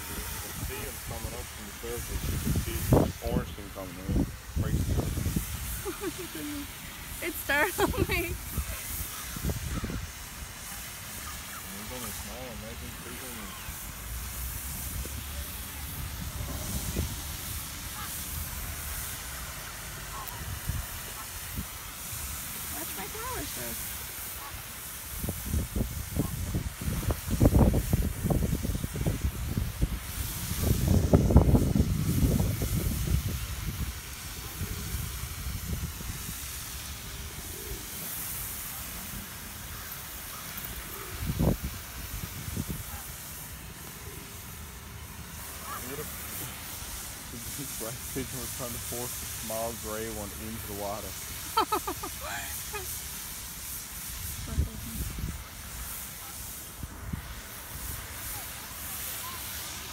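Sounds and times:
wind rumbling on microphone: 0:00.0 - 0:06.4, 0:07.1 - 0:10.3, 0:14.6 - 0:19.1, 0:25.1 - 0:38.2, 0:41.0 - 0:43.1, 0:54.1 - 0:55.5
fountain water spraying: 0:00.0 - 0:59.9
outdoor hiss: 0:00.0 - 0:59.9.

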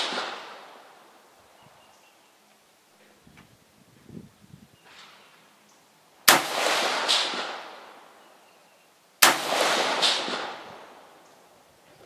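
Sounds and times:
rifle shots with echo: 0:00.0 - 0:01.0, 0:06.3 - 0:08.1, 0:09.2 - 0:11.2.

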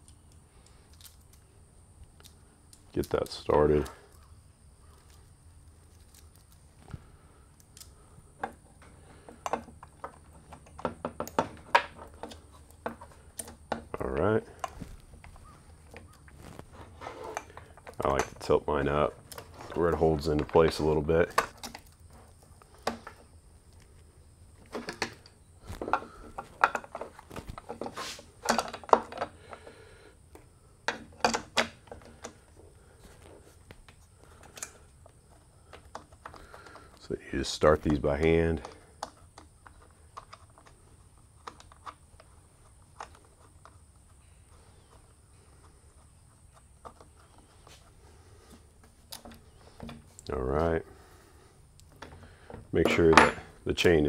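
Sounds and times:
chainsaw parts clattering: 0:52.8 - 0:54.0.

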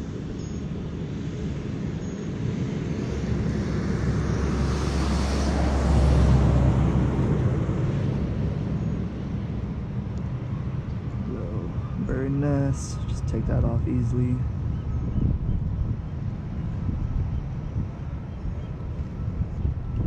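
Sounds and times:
jet aircraft passing over: 0:00.0 - 0:20.0.

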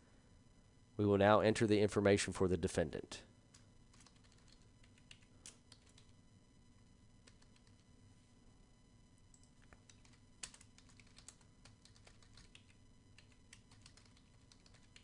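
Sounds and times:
faint keyboard typing: 0:03.5 - 0:06.2, 0:07.2 - 0:07.9, 0:09.3 - 0:15.0.

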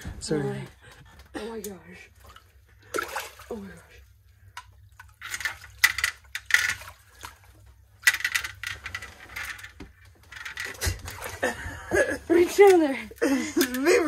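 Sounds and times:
water splashing: 0:02.0 - 0:04.1.

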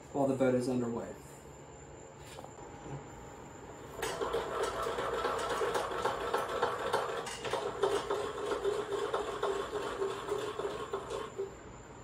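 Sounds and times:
hand-cranked jack whirring: 0:04.0 - 0:11.5.

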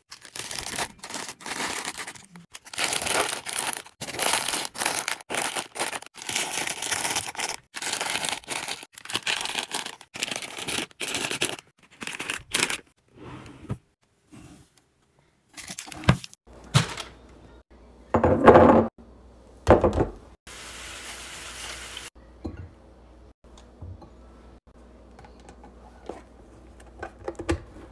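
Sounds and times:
plastic packets crinkling: 0:00.0 - 0:12.9.

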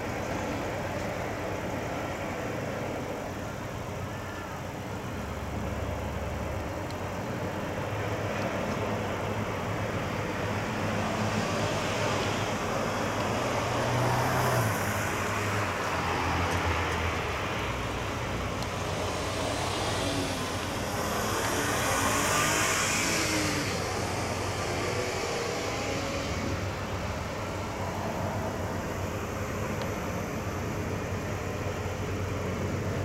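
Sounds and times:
engine rumble: 0:00.0 - 0:33.0
traffic noise: 0:00.0 - 0:33.0
rising and falling engine tones: 0:10.9 - 0:31.2.

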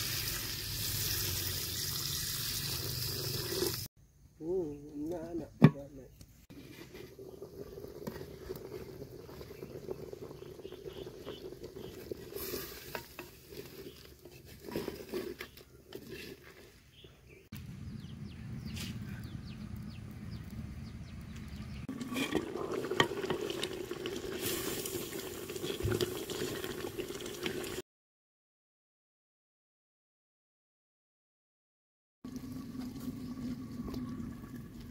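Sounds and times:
food sizzling: 0:00.0 - 0:03.9, 0:06.6 - 0:16.1, 0:21.9 - 0:27.8
wooden ladle stirring and scraping: 0:06.5 - 0:17.2, 0:21.9 - 0:27.7
wood fire crackling: 0:06.6 - 0:16.7, 0:17.6 - 0:27.8
low rumble: 0:17.6 - 0:21.9.

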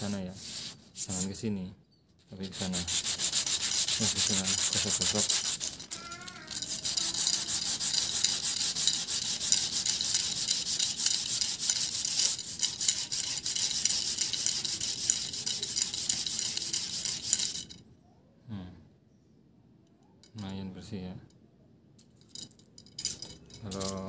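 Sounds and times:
sandpaper rasping on steel rod: 0:00.0 - 0:01.4, 0:02.4 - 0:17.7.

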